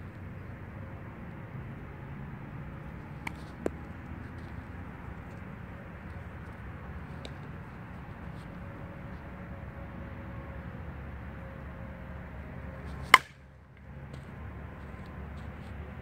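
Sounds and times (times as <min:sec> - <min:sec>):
low outdoor rumble: 0:00.0 - 0:16.0
bat cracking a ball: 0:12.9 - 0:13.4.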